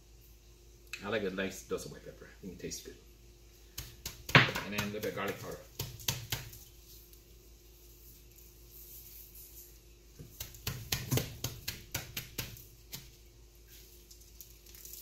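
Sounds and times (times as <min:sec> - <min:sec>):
hand slapping raw meat: 0:03.7 - 0:06.6, 0:10.2 - 0:13.2.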